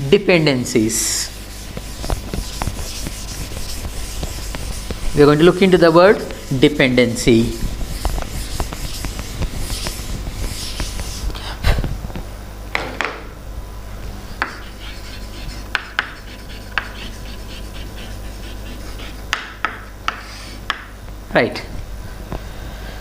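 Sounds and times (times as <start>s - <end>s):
chalk writing on board: 1.0s - 11.4s, 14.3s - 20.9s
eraser rubbing on blackboard: 1.0s - 11.4s, 14.3s - 20.7s
chalk tapping on board: 1.1s - 11.4s, 14.3s - 21.0s.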